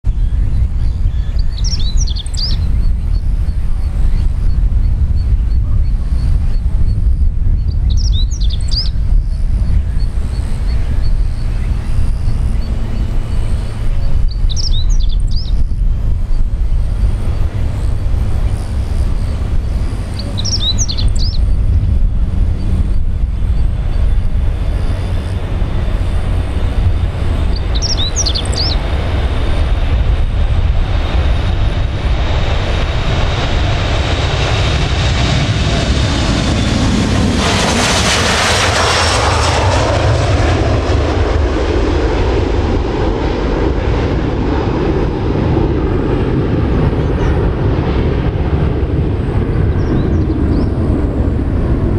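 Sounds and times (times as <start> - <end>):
jet engines with fan whine: 0.0 - 51.9
bird chirping: 0.1 - 16.4, 18.4 - 21.7, 27.4 - 28.9, 49.7 - 50.8.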